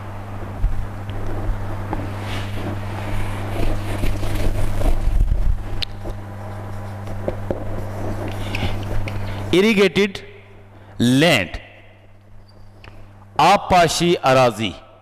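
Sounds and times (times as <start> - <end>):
low electrical hum: 0.0 - 15.0
rustling close to microphone: 1.2 - 9.1.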